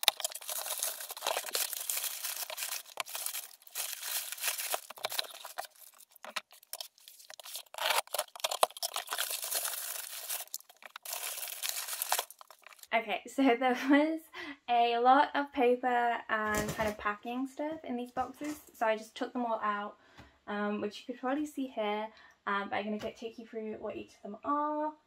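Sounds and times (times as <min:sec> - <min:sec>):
packing paper rustling and crackling: 0:00.0 - 0:12.9.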